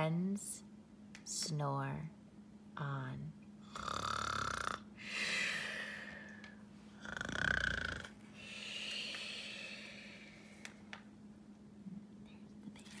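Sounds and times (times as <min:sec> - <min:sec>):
person snoring: 0:03.6 - 0:06.4, 0:07.0 - 0:10.4
breathy exhale: 0:05.0 - 0:06.6, 0:08.3 - 0:10.7.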